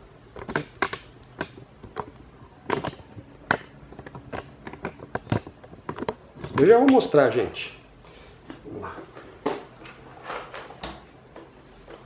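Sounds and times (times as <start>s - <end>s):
plastic fan clicks and knocks: 0.3s - 7.2s.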